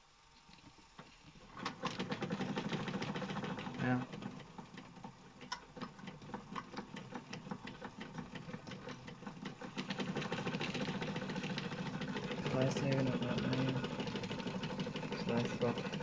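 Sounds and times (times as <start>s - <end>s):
toy steam engine whirring and ticking: 1.4s - 16.0s.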